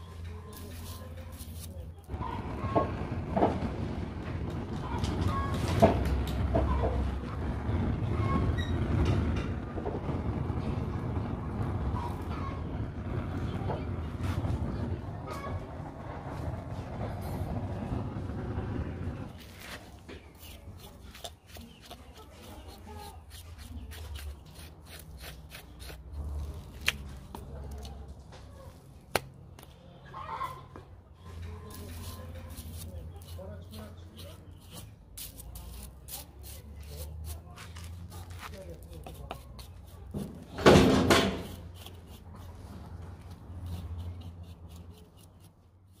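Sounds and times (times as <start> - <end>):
knife scraping charred skin: 0.4 - 2.1, 19.3 - 28.1, 31.6 - 46.0.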